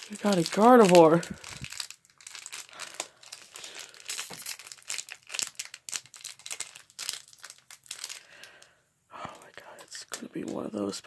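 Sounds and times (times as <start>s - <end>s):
foil wrapper crinkling: 0.0s - 8.7s.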